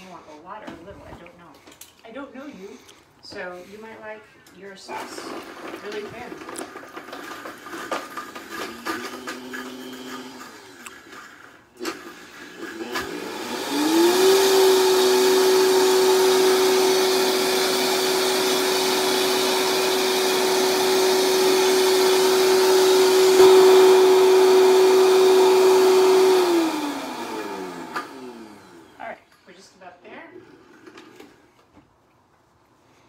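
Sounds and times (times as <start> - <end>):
blender motor grinding: 4.9 - 29.2.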